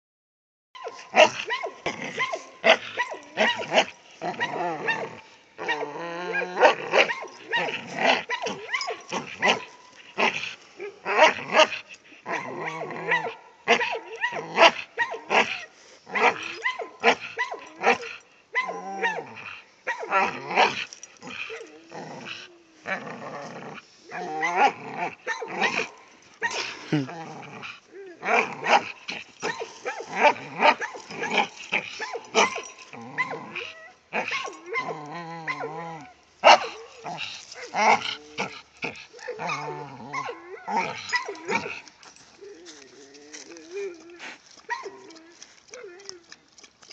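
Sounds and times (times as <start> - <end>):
dog barking and yipping: 0.8 - 19.3, 19.9 - 20.8, 24.1 - 26.9, 28.2 - 35.8, 36.4 - 38.0, 39.1 - 41.8, 44.7 - 46.1
dog barking: 11.1 - 18.0, 36.4 - 36.8.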